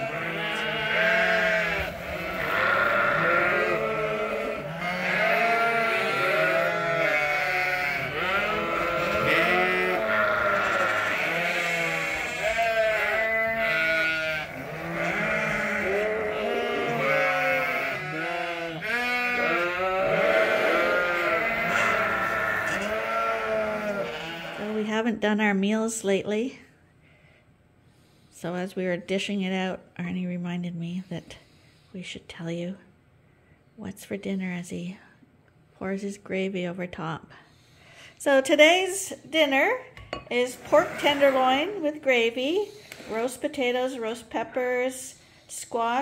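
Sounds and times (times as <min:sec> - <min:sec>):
lambs bleating: 0:00.0 - 0:24.9, 0:40.6 - 0:41.8.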